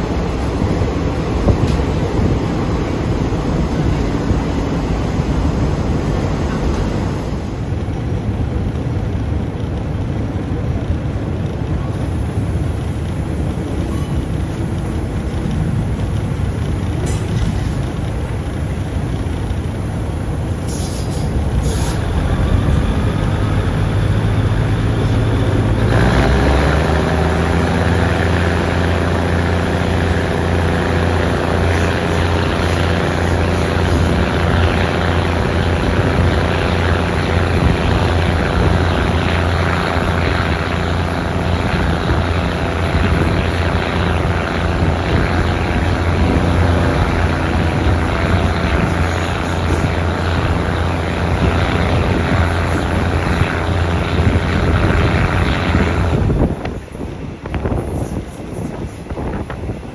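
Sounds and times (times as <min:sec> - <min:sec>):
diesel train engine drone: 0:00.0 - 0:59.9
train running and wind noise: 0:00.0 - 0:59.9.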